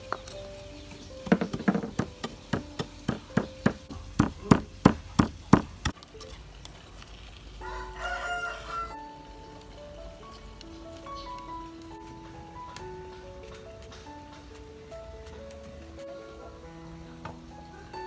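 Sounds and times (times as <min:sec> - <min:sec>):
faint background music: 0:00.0 - 0:18.0
sharp knocks: 0:01.2 - 0:06.0
rooster crowing: 0:07.6 - 0:09.2.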